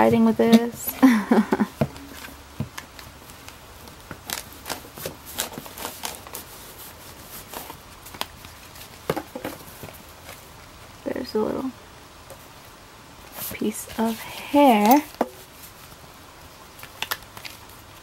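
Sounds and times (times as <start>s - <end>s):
plastic cover crinkling: 1.9s - 10.5s, 16.7s - 18.0s.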